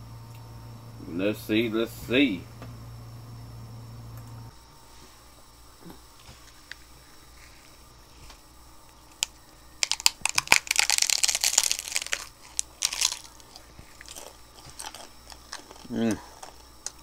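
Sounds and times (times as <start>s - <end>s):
taco shells crunching: 9.0s - 17.0s.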